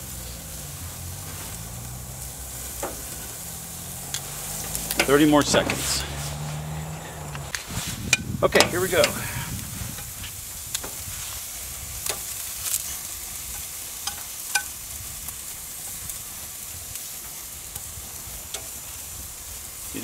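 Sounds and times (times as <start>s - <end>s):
food sizzling on grill: 0.0s - 20.0s
metal tongs clicking on grate: 8.1s - 9.2s, 12.0s - 14.8s, 18.5s - 18.8s.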